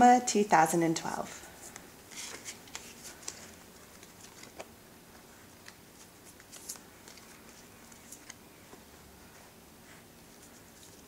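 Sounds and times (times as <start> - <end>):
cards being shuffled: 1.6 - 8.9.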